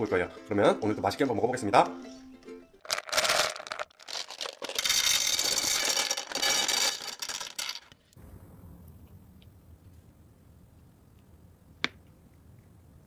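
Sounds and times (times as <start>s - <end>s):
candy balls rattling into glass bowl: 2.8s - 8.0s.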